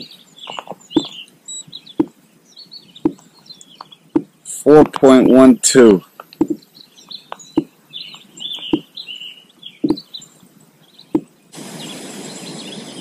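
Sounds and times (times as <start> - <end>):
small birds chirping: 0.0 - 13.0
steady hiss: 0.0 - 13.0
sharp clicks: 6.2 - 8.9.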